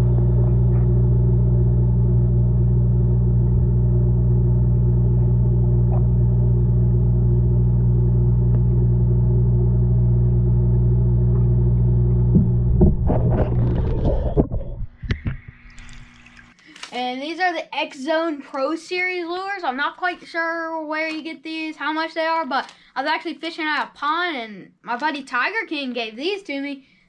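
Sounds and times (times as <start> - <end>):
low machine hum: 0.0 - 16.6.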